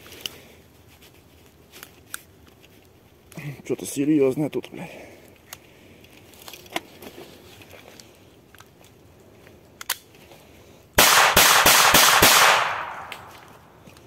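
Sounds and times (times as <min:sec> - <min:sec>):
pistol shots: 0:11.0 - 0:13.7.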